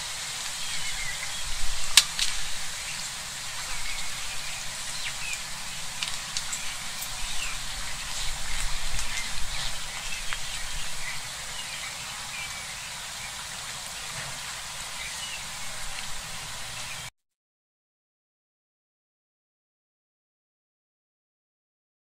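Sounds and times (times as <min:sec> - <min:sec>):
small birds chirping: 0:00.0 - 0:17.1
steady hiss: 0:00.0 - 0:17.1.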